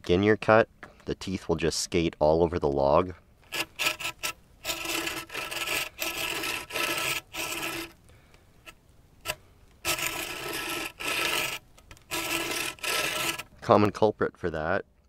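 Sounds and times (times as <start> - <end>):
bow saw cutting log: 3.5 - 8.0, 8.6 - 13.5.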